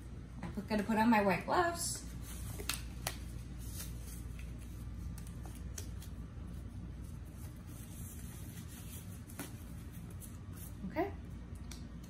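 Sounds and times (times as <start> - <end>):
low room hum: 0.0 - 12.0
gloves rustling and snapping: 2.4 - 6.4.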